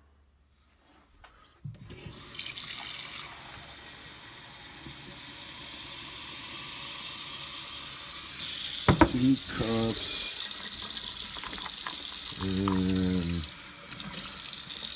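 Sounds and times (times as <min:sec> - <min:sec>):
water filling a glass cup: 0:01.9 - 0:03.9, 0:08.4 - 0:14.9
kitchen faucet running: 0:01.9 - 0:14.9.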